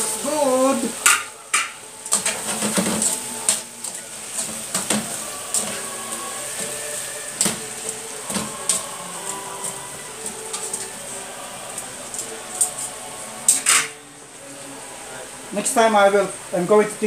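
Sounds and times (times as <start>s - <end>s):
faint frying sizzle: 0.0s - 17.0s
metal tongs clacking on a pan: 1.0s - 5.8s, 6.6s - 8.8s, 9.6s - 10.9s, 13.5s - 14.0s.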